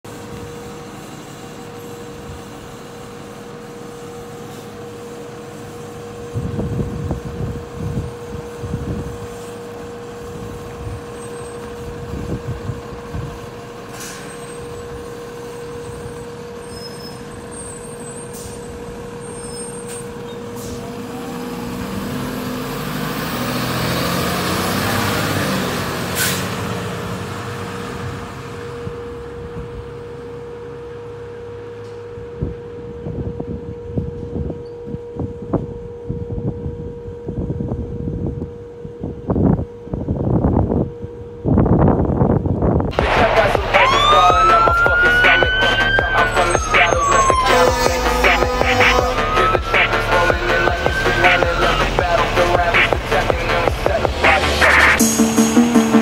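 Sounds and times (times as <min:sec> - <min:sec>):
diesel truck engine: 0:00.0 - 0:34.5, 0:35.2 - 0:56.0
air-brake hiss: 0:00.2 - 0:06.1, 0:13.9 - 0:14.8, 0:15.7 - 0:20.9, 0:26.2 - 0:26.5
steady hum: 0:42.9 - 0:56.0.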